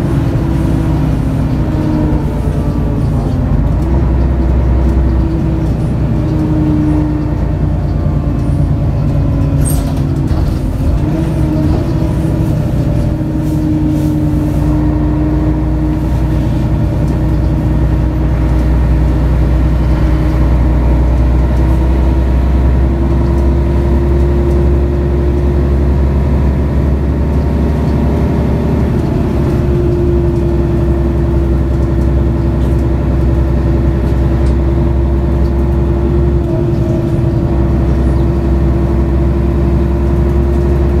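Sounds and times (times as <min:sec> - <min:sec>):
bus diesel engine running: 0:00.0 - 0:41.0.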